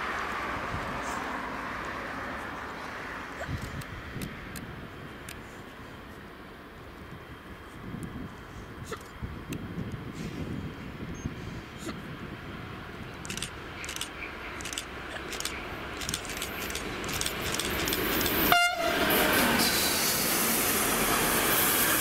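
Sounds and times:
freight train running on rails: 0:00.0 - 0:22.0
locomotive horn toot: 0:18.5 - 0:19.2.

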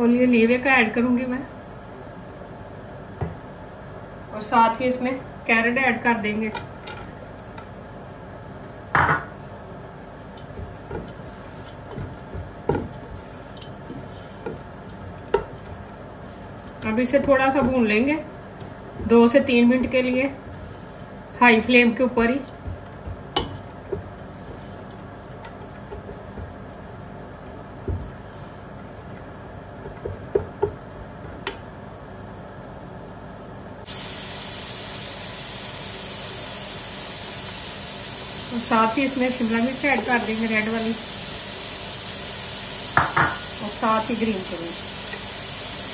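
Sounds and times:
carrots sizzling in oil: 0:33.9 - 0:45.9
utensil knocking against a pot: 0:43.0 - 0:43.4.

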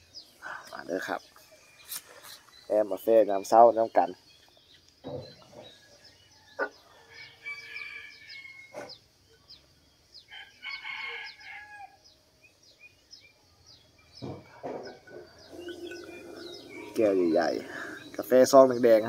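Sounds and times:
small birds chirping: 0:00.0 - 0:19.0
rooster crowing: 0:06.6 - 0:08.8, 0:10.3 - 0:12.1, 0:15.1 - 0:18.4.

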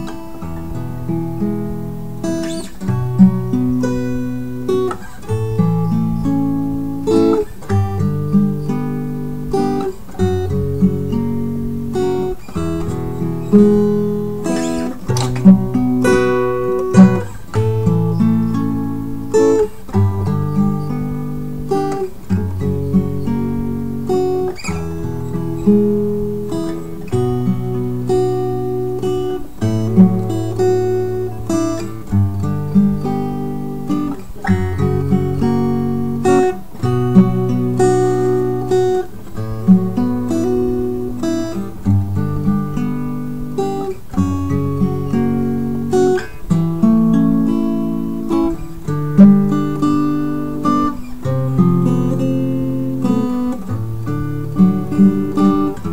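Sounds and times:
acoustic guitar music: 0:00.0 - 0:55.9.

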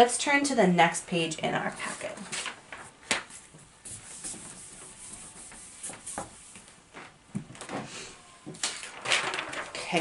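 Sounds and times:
eraser scrubbing whiteboard: 0:03.3 - 0:06.6.

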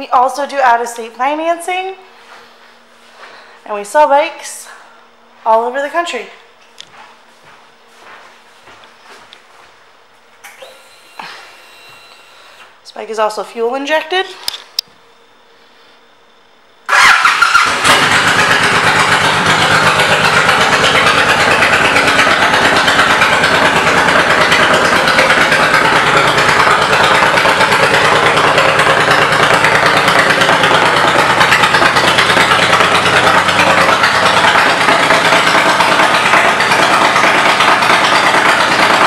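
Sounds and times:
motorcycle engine starting and idling: 0:10.4 - 0:13.3, 0:16.9 - 0:39.0.

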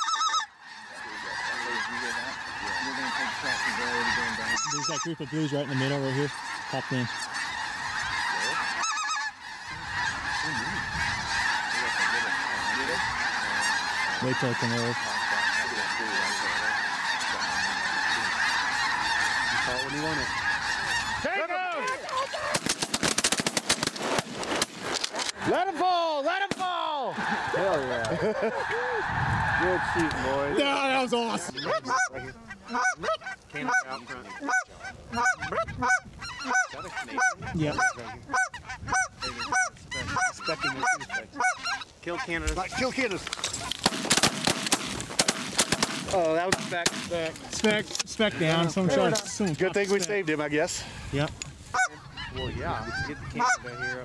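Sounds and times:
deeper goose call: 0:00.0 - 0:22.7, 0:27.1 - 0:43.0, 0:51.7 - 0:54.0
flock of geese yelping: 0:00.0 - 0:54.0.

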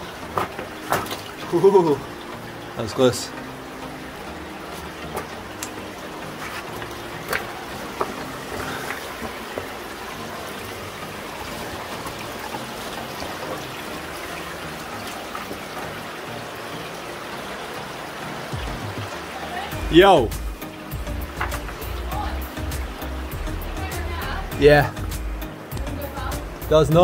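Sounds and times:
creek water trickling over stones: 0:00.0 - 0:27.0
footsteps on wet rocks: 0:04.7 - 0:10.4.

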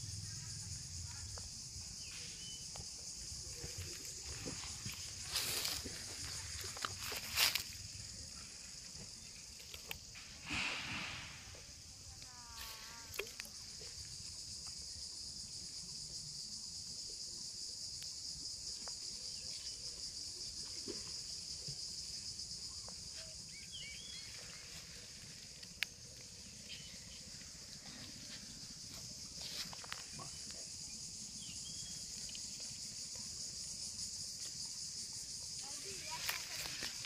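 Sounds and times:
insects buzzing: 0:00.0 - 0:37.0.

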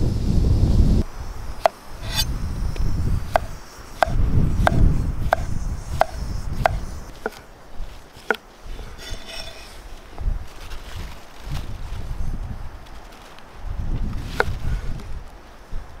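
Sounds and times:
knife slicing cucumber on wood: 0:01.6 - 0:02.3, 0:03.4 - 0:07.4.

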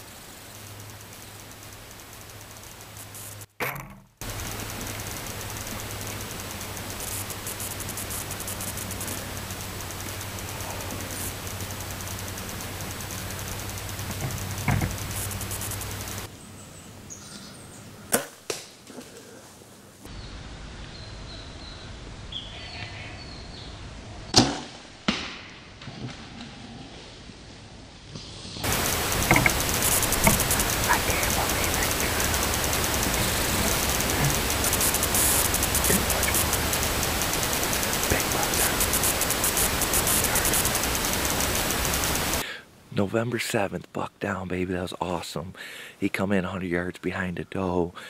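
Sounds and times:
electrical hum: 0:00.0 - 0:18.5, 0:28.6 - 0:44.9
loud microphone hiss: 0:00.0 - 0:25.8, 0:26.9 - 0:48.0
bow shot crack: 0:24.3 - 0:25.9
man's faint voice or breathing: 0:45.6 - 0:46.0.

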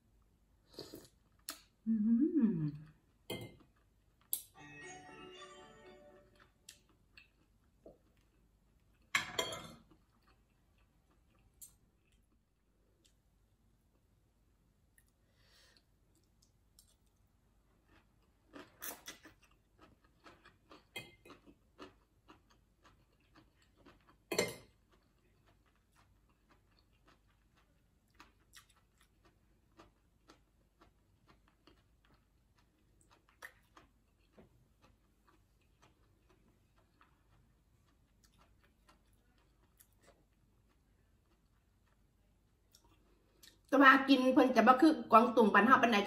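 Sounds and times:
chewing: 0:16.1 - 0:43.7.

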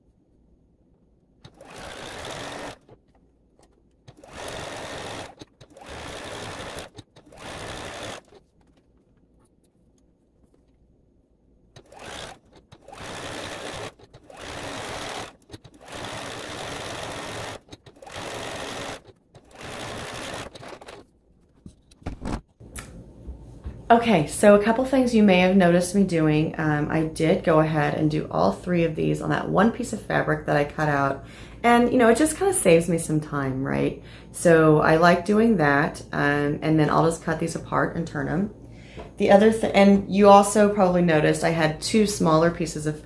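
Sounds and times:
sewing machine stitching: 0:01.4 - 0:09.0, 0:11.7 - 0:21.1.

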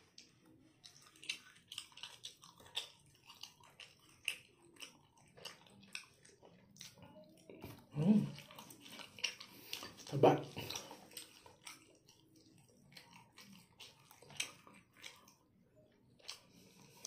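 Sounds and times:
wet chewing with mouth smacking: 0:00.0 - 0:17.0.

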